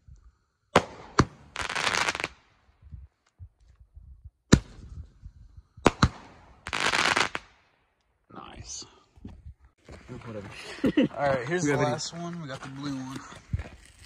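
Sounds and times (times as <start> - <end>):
crackling firework bursts: 0.7 - 2.6, 5.8 - 7.8.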